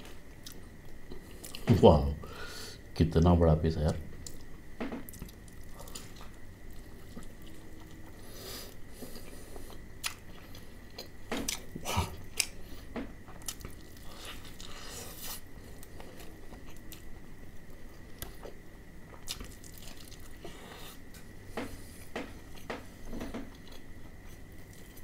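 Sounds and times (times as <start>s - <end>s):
person crunching fried chicken: 19.1s - 20.6s.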